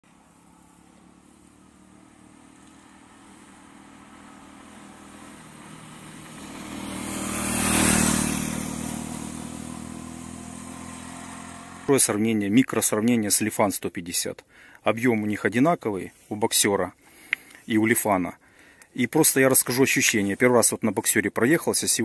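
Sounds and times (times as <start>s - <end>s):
motorcycle passing by: 0.0s - 12.3s.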